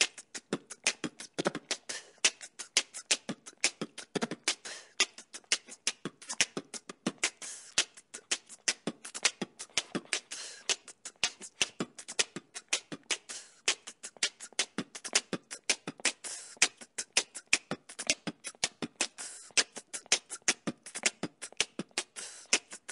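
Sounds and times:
beatbox-style beat: 0.0s - 22.9s.

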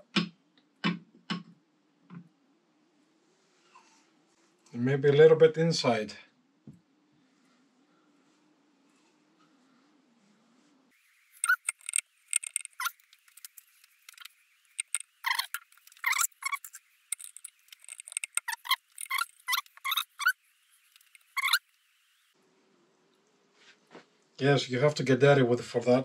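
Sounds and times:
sticky squeaks of greasing: 11.4s - 21.7s.

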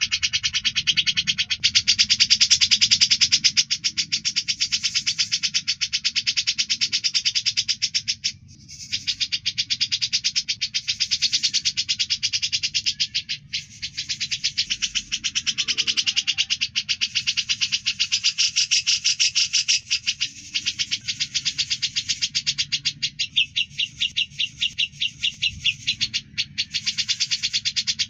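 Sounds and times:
songbird buzzing trill: 10.8s - 28.0s.

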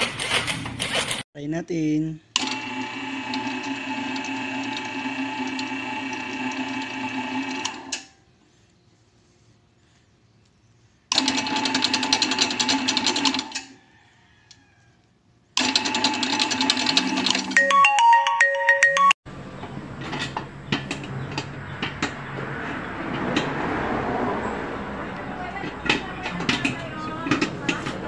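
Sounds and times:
stand mixer whisk humming: 2.6s - 7.7s
dough mixer rattling clatter: 15.6s - 17.6s, 25.5s - 28.0s
electronic beeping tune: 17.6s - 19.2s.

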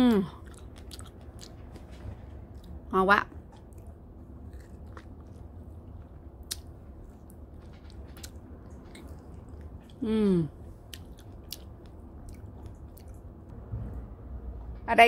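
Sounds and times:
person chewing strawberry: 0.0s - 2.8s, 3.5s - 13.3s
person humming mmm: 10.0s - 10.6s.

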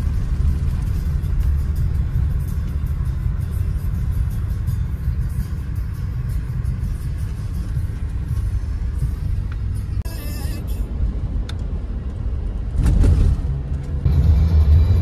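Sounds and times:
music: 0.0s - 10.8s, 14.0s - 15.0s
car road and engine rumble: 0.0s - 15.0s.

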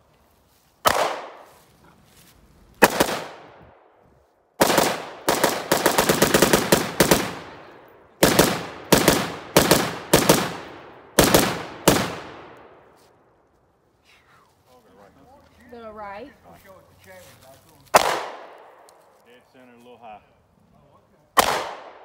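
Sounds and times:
gunshot echo: 0.8s - 1.5s, 6.6s - 12.8s, 17.9s - 18.9s, 21.4s - 22.0s
handgun shot: 0.8s - 1.5s, 17.9s - 18.6s, 21.4s - 22.0s
rifle firing rapid shots: 0.9s - 1.4s, 2.8s - 3.5s, 4.6s - 12.6s, 17.9s - 18.6s, 21.4s - 22.0s.

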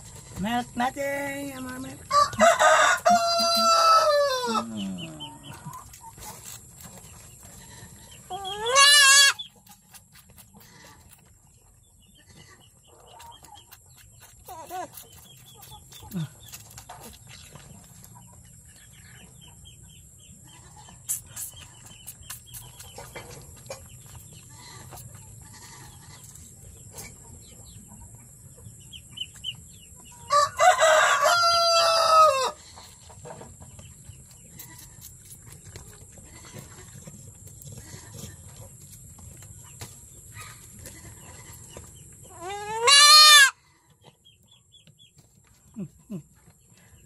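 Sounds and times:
rooster crowing: 2.1s - 4.8s, 30.3s - 32.6s
goat kid bleating: 7.6s - 9.5s, 24.4s - 26.3s, 36.2s - 37.0s, 37.8s - 38.2s, 42.4s - 43.6s.

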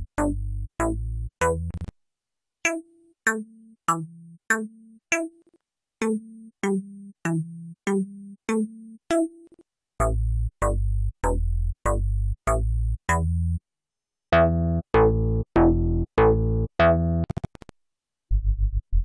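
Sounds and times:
synthesizer bass notes: 0.0s - 1.9s, 10.0s - 13.6s, 14.4s - 17.2s.

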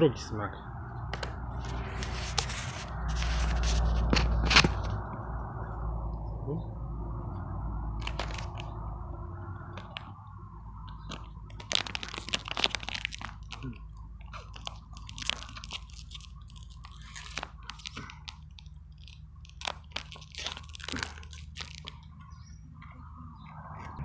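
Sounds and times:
wrapper crinkling and tearing: 1.2s - 4.9s, 8.0s - 8.8s, 9.7s - 10.1s, 10.9s - 22.2s.

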